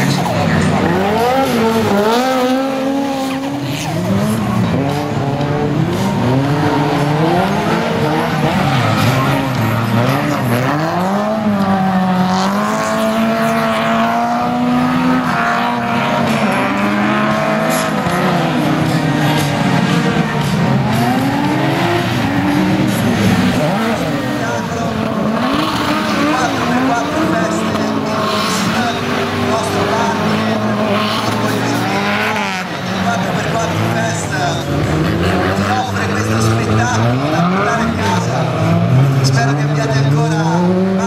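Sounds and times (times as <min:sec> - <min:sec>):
off-road engines revving: 0:00.0 - 0:41.0.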